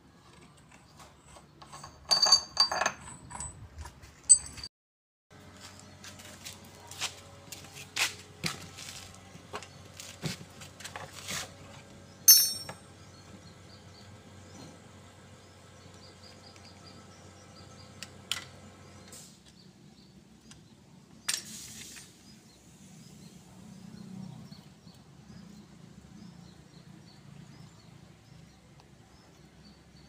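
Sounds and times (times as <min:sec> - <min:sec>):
hand tool clinking on metal: 0:01.6 - 0:03.6, 0:04.2 - 0:04.7, 0:12.3 - 0:12.8.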